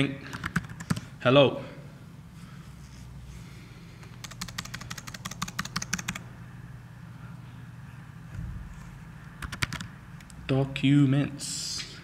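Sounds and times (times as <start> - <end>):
computer keyboard typing: 0.3 - 1.1, 4.1 - 6.2, 9.4 - 9.9.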